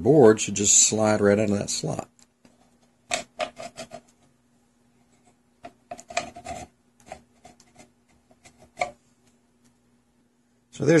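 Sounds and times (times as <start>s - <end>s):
faint steady hum: 0.0s - 11.0s
circuit board scraping on metal: 3.1s - 4.2s, 5.9s - 9.0s.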